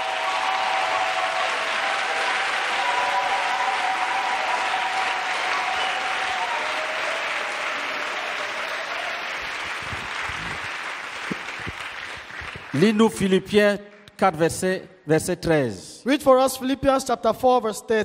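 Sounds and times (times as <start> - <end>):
congregation clapping: 0.0 - 14.2.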